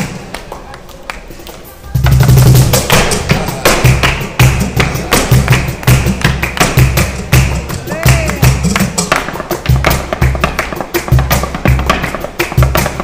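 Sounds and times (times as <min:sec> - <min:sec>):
flamenco guitar: 0:00.0 - 0:13.0
shoes stamping on wooden board: 0:08.5 - 0:13.0.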